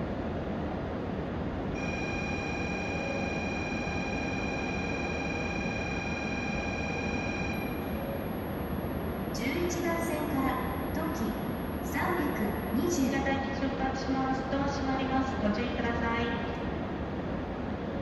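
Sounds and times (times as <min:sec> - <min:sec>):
train platform hum: 0:00.0 - 0:18.0
high electronic tone: 0:01.8 - 0:08.7.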